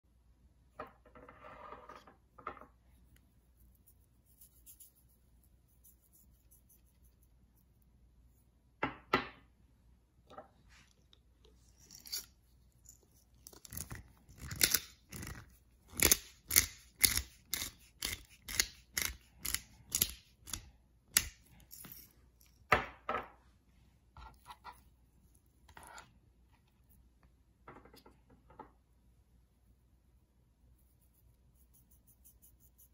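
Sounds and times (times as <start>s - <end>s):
pepper mill grinding: 11.8s - 22.0s.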